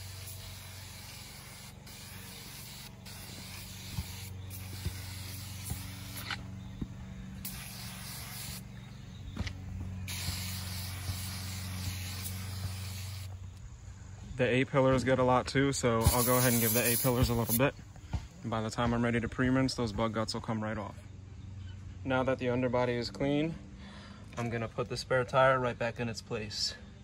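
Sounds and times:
aerosol can spraying: 0.0s - 6.5s, 7.4s - 8.7s, 10.1s - 13.4s, 16.0s - 17.6s.

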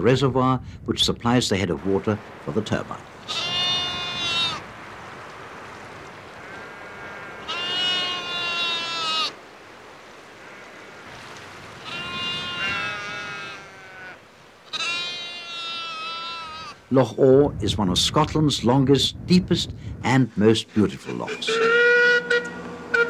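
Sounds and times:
sheep bleating: 3.2s - 4.7s, 6.3s - 9.4s, 11.8s - 16.8s, 21.4s - 22.5s.

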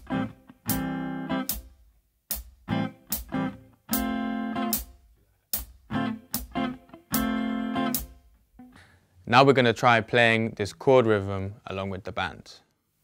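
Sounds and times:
hi-hat ticking: 0.0s - 8.4s
guitar chord stabs: 2.7s - 4.9s, 5.9s - 8.8s.

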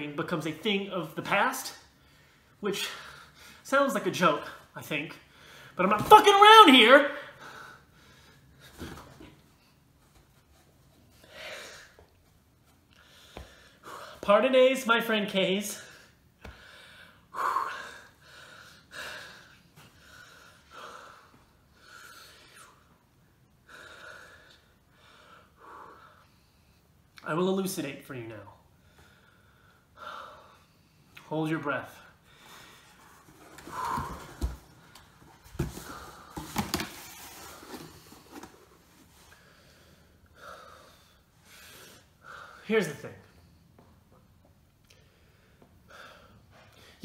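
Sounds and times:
man breathing hard: 7.2s - 9.8s, 11.2s - 12.2s, 12.9s - 14.2s, 15.8s - 23.0s, 23.6s - 27.0s, 28.7s - 31.2s, 32.0s - 36.6s, 39.2s - 42.7s, 44.9s - 47.0s.

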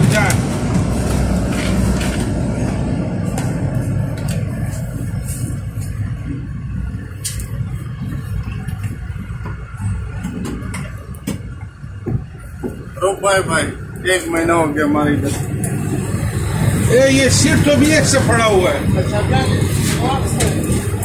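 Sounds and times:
bus engine rumbling: 0.0s - 21.0s.

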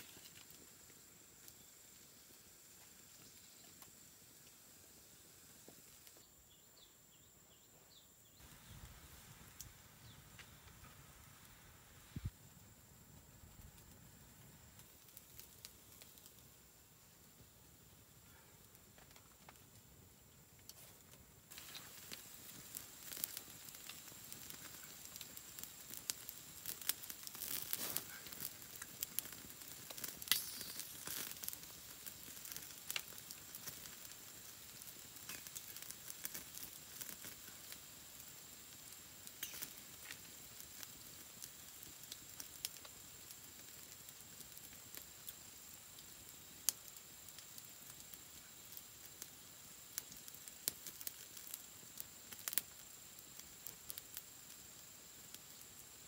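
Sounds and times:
wood fire crackling: 0.0s - 56.0s
leaf crinkling: 26.4s - 32.1s.

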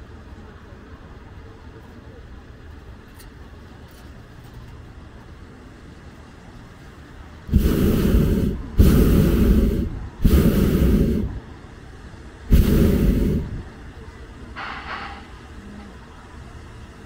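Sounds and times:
propane burner blasts: 6.8s - 17.0s.

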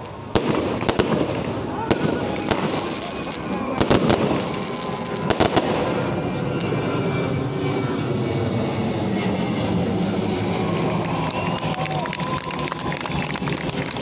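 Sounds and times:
firework shells bursting: 0.0s - 6.7s.

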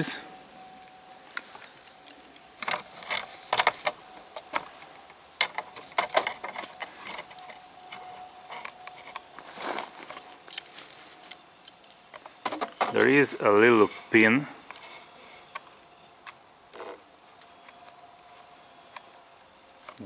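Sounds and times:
rifle parts clicking and rattling: 1.3s - 13.2s.

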